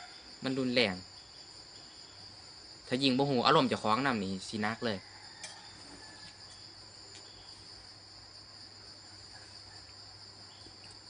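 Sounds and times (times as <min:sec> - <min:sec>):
high-pitched insect chorus: 0:00.0 - 0:11.0.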